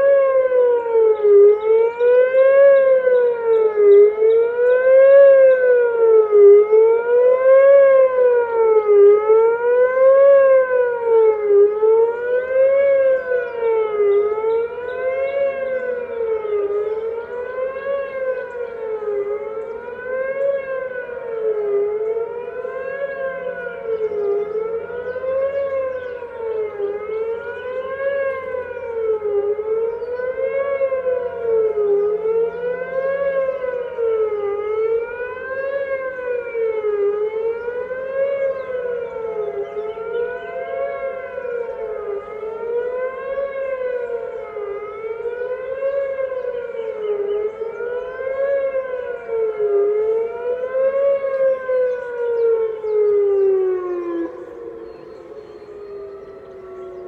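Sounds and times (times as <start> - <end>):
warning siren rising and falling: 0.0 - 57.0.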